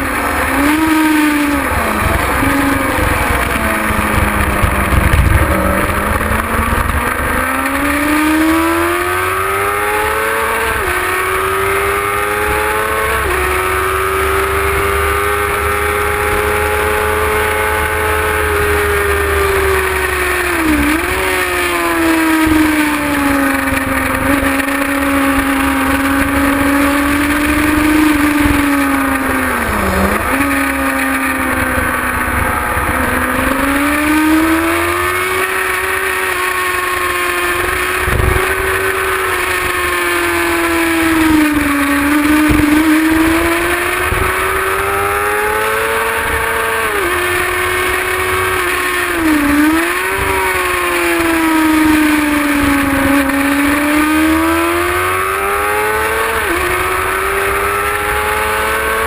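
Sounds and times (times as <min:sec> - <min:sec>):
motorcycle engine at high revs: 0:00.0 - 0:59.0
wind buffeting microphone: 0:01.6 - 0:07.5, 0:37.7 - 0:39.8.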